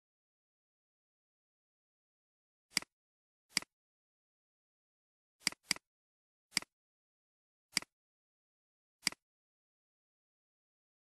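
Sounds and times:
computer mouse clicking: 2.7s - 2.9s, 5.4s - 5.8s, 6.5s - 6.7s, 7.7s - 7.9s, 9.0s - 9.2s.

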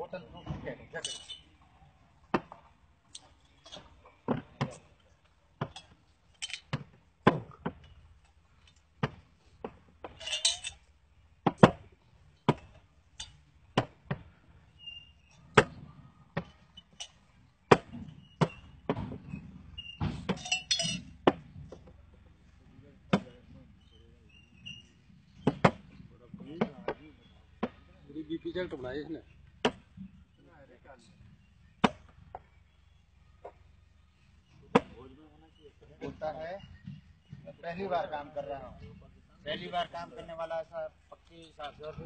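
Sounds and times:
bottles rattling together: 1.0s - 1.6s, 5.6s - 6.8s, 10.0s - 10.9s, 20.2s - 21.2s
glass bottles clinking: 1.0s - 1.6s, 5.6s - 6.8s, 10.0s - 10.9s, 20.2s - 21.2s.

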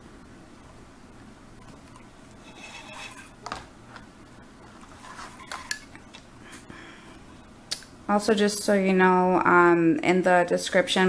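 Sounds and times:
handling clicks and scrapes: 1.6s - 4.0s, 4.8s - 6.0s
paracord rubbing and sliding: 2.3s - 3.4s, 4.8s - 5.7s.

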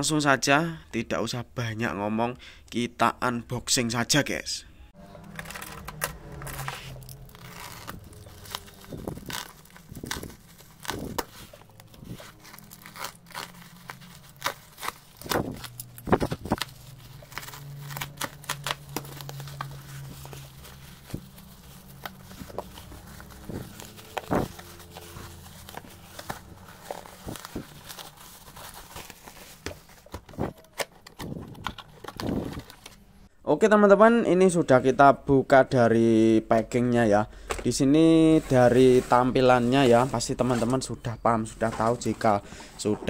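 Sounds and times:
bubble wrap cracking: 5.2s - 33.0s
plastic crinkling and tearing: 5.2s - 33.1s.

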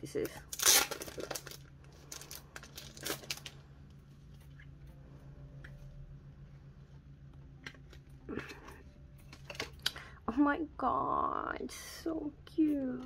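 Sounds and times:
faint steady hum: 0.0s - 13.0s
plastic sleeve crinkling: 0.2s - 4.6s.

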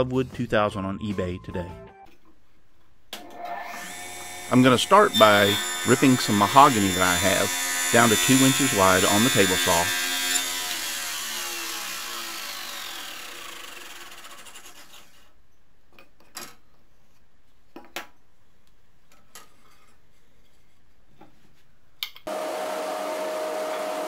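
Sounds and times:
table saw spinning down: 3.2s - 14.9s, 22.3s - 24.0s.

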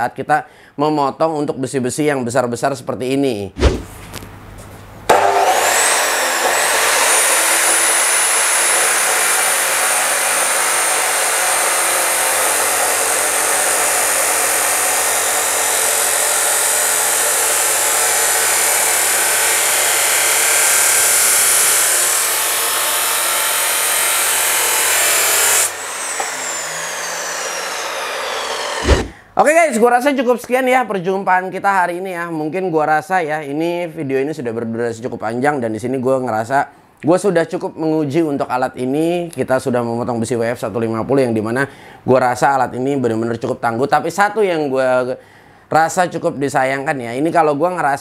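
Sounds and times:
abrasive wheel grinding steel: 5.1s - 29.2s
chop saw motor whine: 5.1s - 29.3s.

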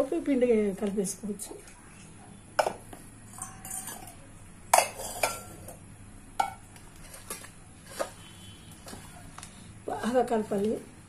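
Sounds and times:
steel vessels clinking: 3.3s - 5.8s.

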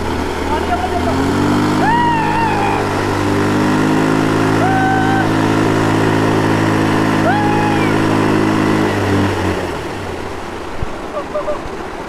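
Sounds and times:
motorcycle engine revving: 0.0s - 10.8s
water spraying: 0.0s - 12.0s
high rising-and-falling calls: 1.0s - 5.8s, 7.1s - 8.4s, 11.1s - 11.7s.

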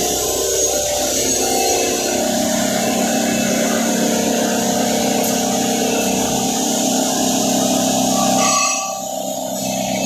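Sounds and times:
electric motor humming: 0.0s - 10.0s.

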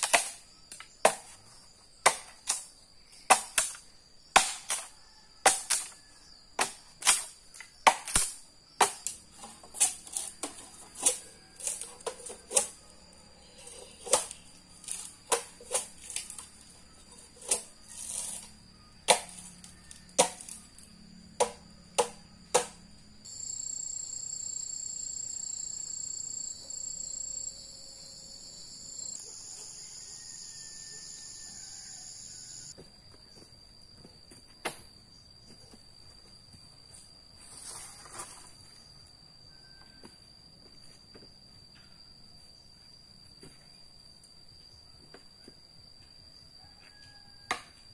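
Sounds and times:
high insect trill: 0.0s - 47.9s
high-pitched insect buzz: 11.3s - 34.4s
sharp chopping knocks: 21.4s - 22.8s.

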